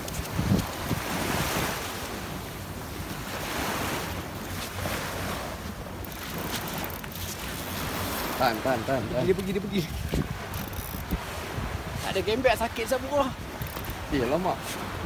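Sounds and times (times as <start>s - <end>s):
wind buffeting microphone: 0.0s - 1.9s, 7.8s - 15.0s
surf washing onto beach: 0.0s - 10.5s, 11.1s - 15.0s.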